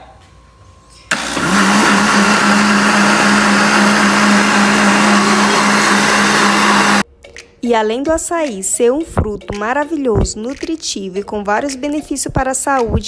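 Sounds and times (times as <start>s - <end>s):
blender running: 1.1s - 7.0s.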